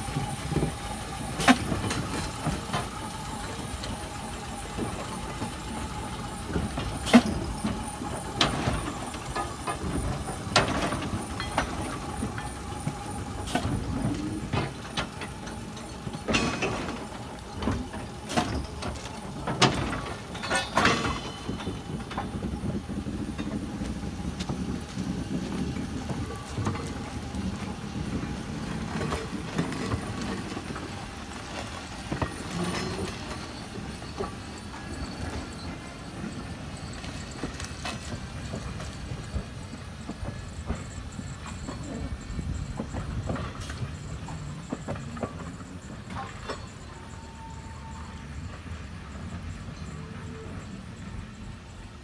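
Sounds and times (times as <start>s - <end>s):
metal clanks and knocks: 13.5s - 23.8s.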